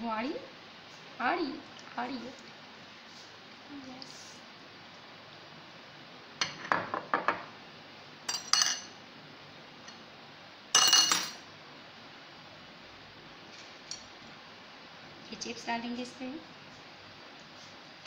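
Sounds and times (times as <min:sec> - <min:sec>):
cutlery clinking on plates: 0:08.3 - 0:09.0, 0:10.8 - 0:11.4.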